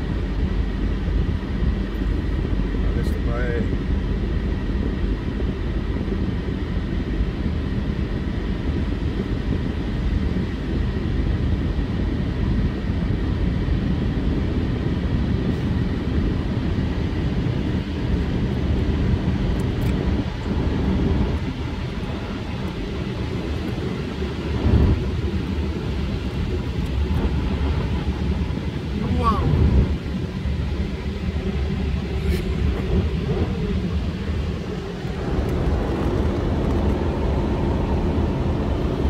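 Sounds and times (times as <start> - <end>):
car wash drying blowers: 13.8 - 39.0.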